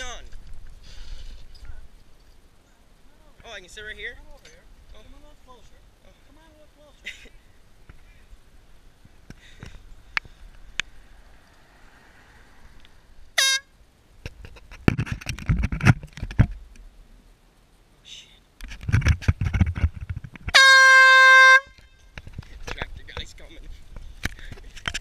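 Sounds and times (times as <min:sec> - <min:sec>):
air horn blast: 0:13.4 - 0:13.7, 0:20.5 - 0:21.8
low thumps and rustling: 0:14.2 - 0:16.9, 0:18.6 - 0:20.6.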